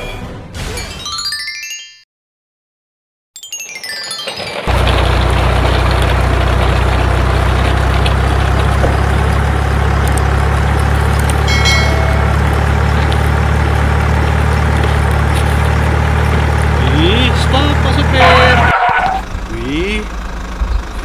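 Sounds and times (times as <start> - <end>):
bright chime: 3.4 - 4.7, 11.5 - 12.3
truck engine rumble: 3.6 - 21.0.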